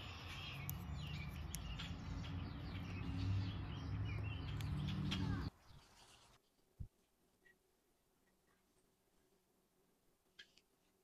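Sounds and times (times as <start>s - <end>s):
small birds chirping: 0.0s - 6.7s.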